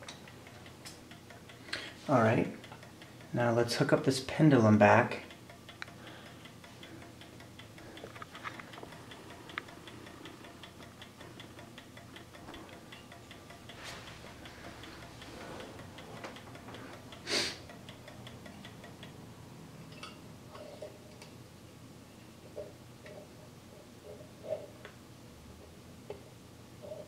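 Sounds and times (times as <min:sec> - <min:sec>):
clock ticking faintly: 0:00.0 - 0:19.4
rustling noise: 0:13.7 - 0:14.2.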